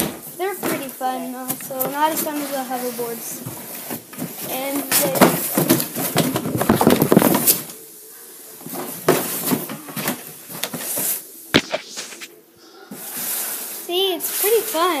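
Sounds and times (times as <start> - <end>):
camera handling noise: 11.6 - 12.3.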